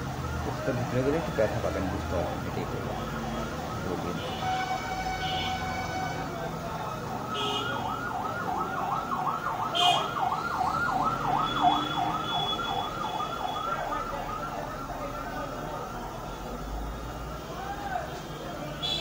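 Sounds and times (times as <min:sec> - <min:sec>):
electronic siren yelping: 0:07.6 - 0:14.7.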